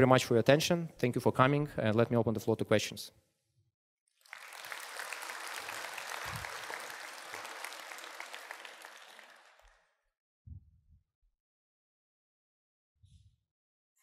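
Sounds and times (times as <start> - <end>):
audience applauding: 4.2 - 9.9.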